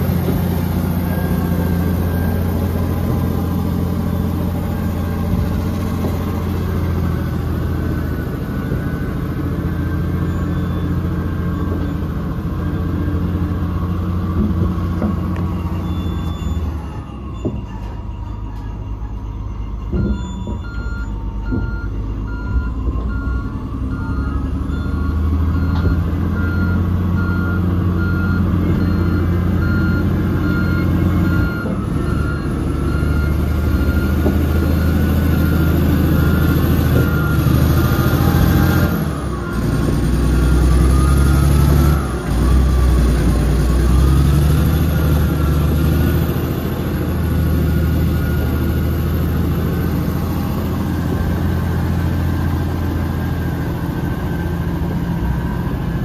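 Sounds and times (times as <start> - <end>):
bulldozer engine under load: 0.0 - 56.0
backup alarm beeping: 15.0 - 38.3.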